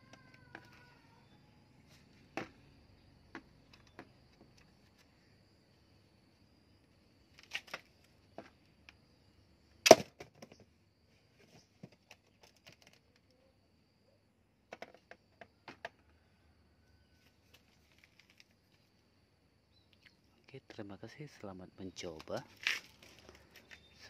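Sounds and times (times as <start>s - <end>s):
wooden knocks and clicks: 3.3s - 5.1s.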